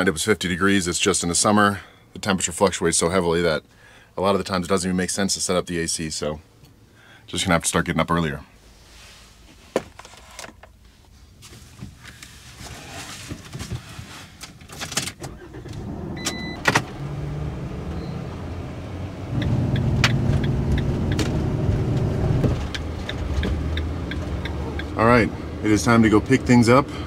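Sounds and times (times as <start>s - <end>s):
van engine and road noise: 8.6s - 27.0s
clicks and handling noises: 9.7s - 12.4s
electronic dashboard beep: 16.2s - 16.7s, 17.9s - 18.4s
sharp ticks: 22.7s - 24.9s.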